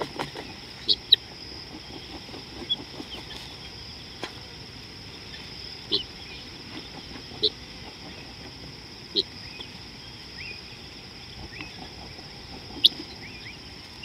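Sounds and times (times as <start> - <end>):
bird chirps: 0.0 - 4.1, 5.2 - 8.4, 9.1 - 14.0
high-pitched insect drone: 0.0 - 14.0.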